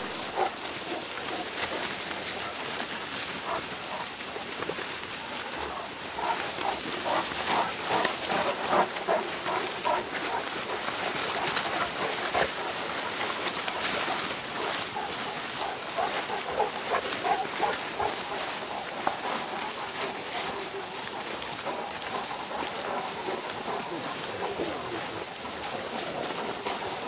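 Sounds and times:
rustling through tall grass: 0.0s - 27.0s.

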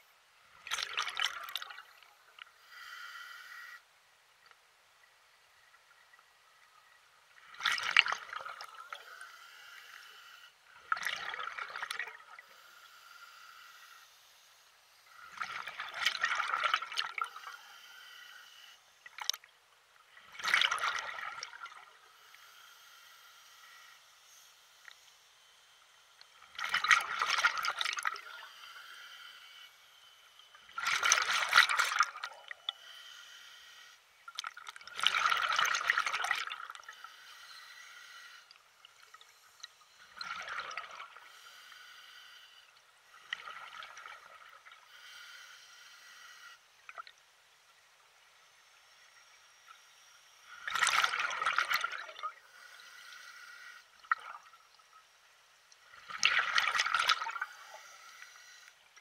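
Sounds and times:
water lapping in small waves: 6.8s - 9.0s, 10.7s - 12.5s, 19.0s - 22.0s, 26.3s - 28.5s, 30.6s - 32.6s, 34.3s - 36.9s, 50.5s - 52.4s, 55.8s - 58.0s.

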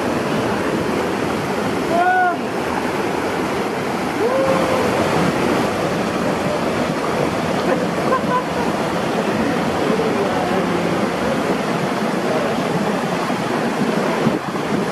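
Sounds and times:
mountain stream rushing over rocks: 0.0s - 14.9s
man shouting: 1.9s - 2.4s.

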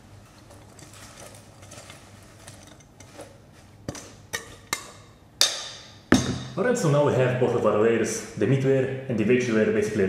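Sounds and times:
rustling of greens: 0.0s - 3.8s.

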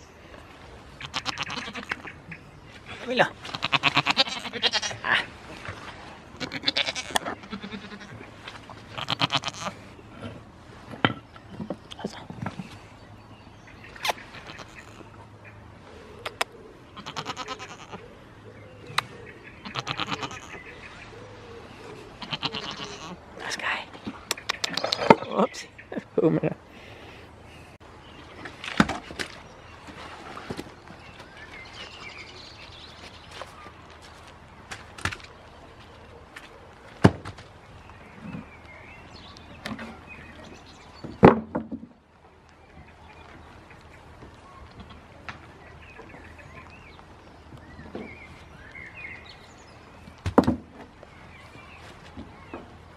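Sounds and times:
goats bleating: 1.0s - 2.0s, 3.4s - 5.3s, 6.4s - 8.2s, 8.9s - 9.8s, 17.0s - 18.0s, 19.6s - 20.6s, 22.2s - 23.2s
wooden pallet knocks: 41.0s - 41.9s, 50.2s - 50.9s.

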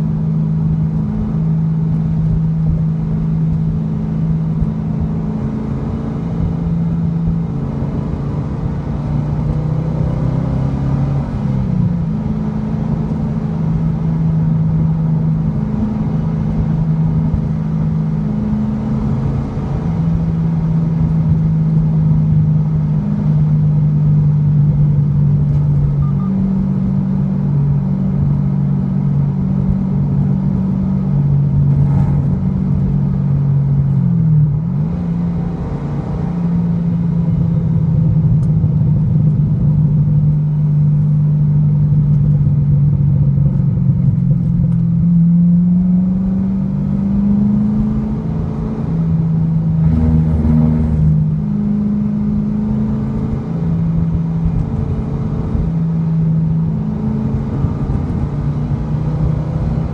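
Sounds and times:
car engine drone from cabin: 0.0s - 59.9s.

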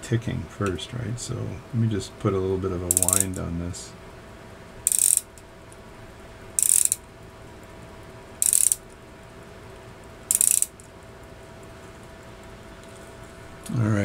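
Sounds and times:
clock being wound with key: 2.9s - 3.4s, 4.9s - 5.3s, 6.6s - 7.0s, 8.4s - 8.8s, 10.3s - 10.7s.

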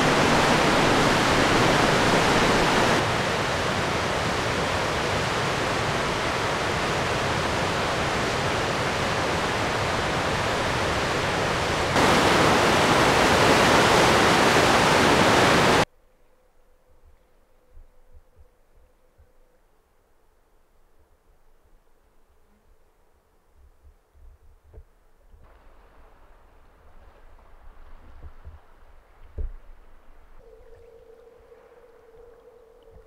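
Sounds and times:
river rapids rushing: 0.0s - 15.8s.

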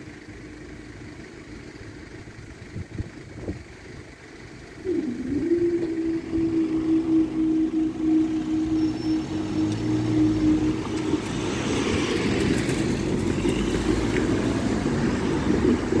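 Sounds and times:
road traffic moving: 0.0s - 16.0s
level crossing alarm pulsing: 4.8s - 12.0s.

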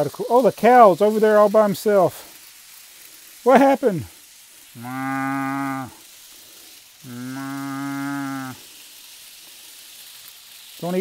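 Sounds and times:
cow mooing: 4.8s - 6.0s, 7.0s - 8.6s.

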